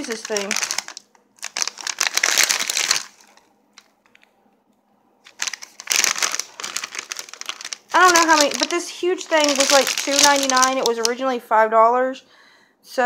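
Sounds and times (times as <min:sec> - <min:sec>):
plastic bag crinkling: 0:00.0 - 0:04.3, 0:05.2 - 0:11.3.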